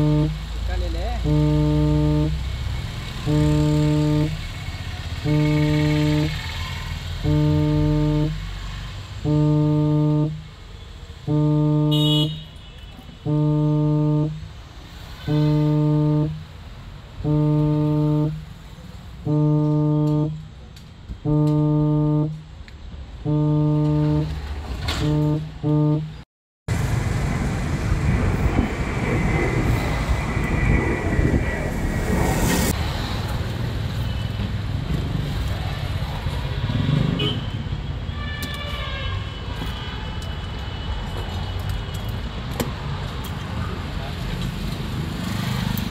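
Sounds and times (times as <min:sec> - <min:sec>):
low horn-like beeps: 0:00.0 - 0:00.5, 0:01.2 - 0:02.6, 0:03.2 - 0:04.6, 0:05.2 - 0:10.6, 0:11.2 - 0:12.5, 0:13.2 - 0:14.6, 0:15.2 - 0:16.6, 0:17.2 - 0:18.6, 0:19.2 - 0:20.5, 0:21.2 - 0:22.5, 0:23.2 - 0:26.2
steady dense noise: 0:00.0 - 0:02.5, 0:03.2 - 0:04.4, 0:05.2 - 0:06.4, 0:07.2 - 0:08.6, 0:09.2 - 0:10.6, 0:11.2 - 0:12.3, 0:13.2 - 0:14.5, 0:15.3 - 0:18.5, 0:19.1 - 0:20.6, 0:23.2 - 0:24.3.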